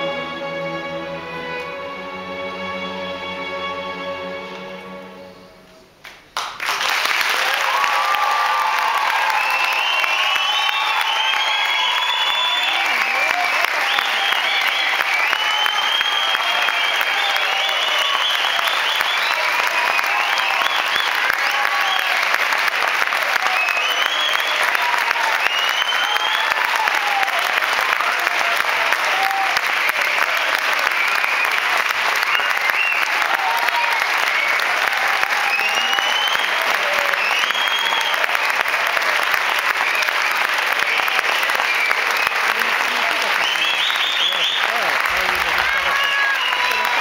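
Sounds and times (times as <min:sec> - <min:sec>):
audience clapping: 0:06.0 - 0:47.0
whoops and calls: 0:07.4 - 0:22.2, 0:32.2 - 0:38.4, 0:45.3 - 0:47.0.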